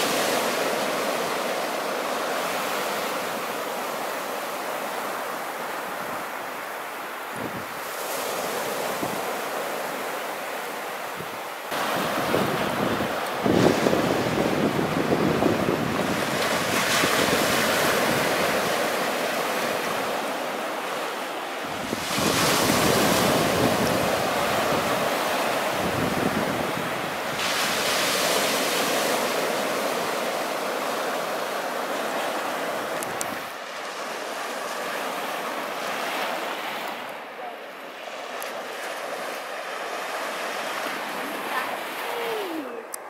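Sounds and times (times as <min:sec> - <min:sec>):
small waves breaking on beach: 0:00.0 - 0:43.0
wind buffeting microphone: 0:11.2 - 0:18.8, 0:21.6 - 0:28.9.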